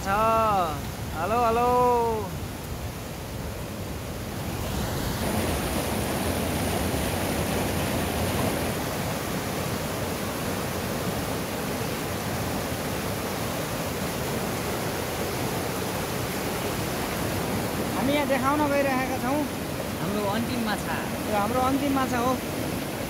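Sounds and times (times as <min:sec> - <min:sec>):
river rushing over rocks: 0:00.0 - 0:23.0.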